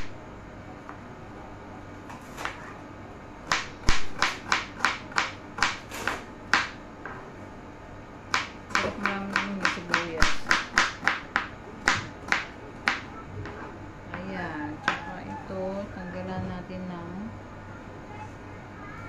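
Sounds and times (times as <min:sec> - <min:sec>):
knife slicing onion on board: 0:02.1 - 0:02.7, 0:03.5 - 0:06.8, 0:08.3 - 0:13.6.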